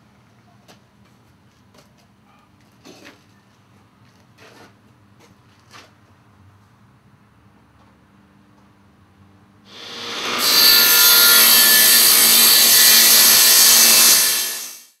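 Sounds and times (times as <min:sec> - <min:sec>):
power saw cutting wood: 0:09.7 - 0:15.0.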